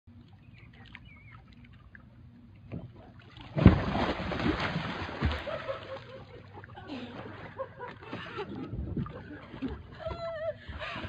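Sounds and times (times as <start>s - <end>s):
water churning: 0.1s - 11.0s
loud splash: 3.4s - 6.0s.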